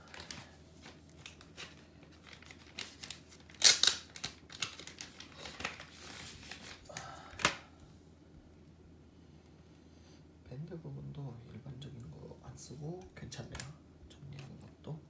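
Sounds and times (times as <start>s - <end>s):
rustling and crinkling: 0.0s - 6.9s.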